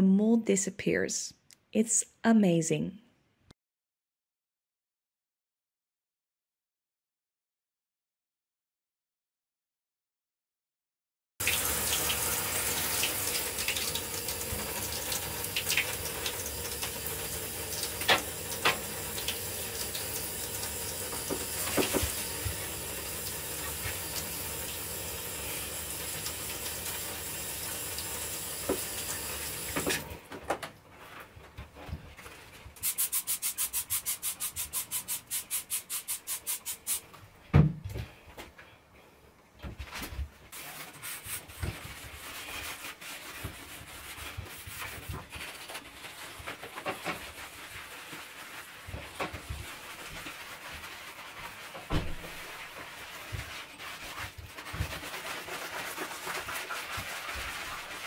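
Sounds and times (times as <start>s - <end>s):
shower spraying water: 11.4s - 30.1s, 32.8s - 37.1s, 40.6s - 58.0s
scrubbing on tiled wall: 31.0s - 37.1s, 40.4s - 58.0s
thump: 37.5s - 38.1s, 51.9s - 52.4s.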